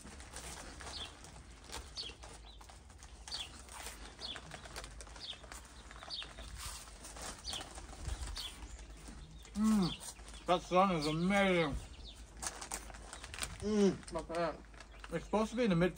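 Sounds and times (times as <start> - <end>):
songbird chirping: 0.0 - 15.9.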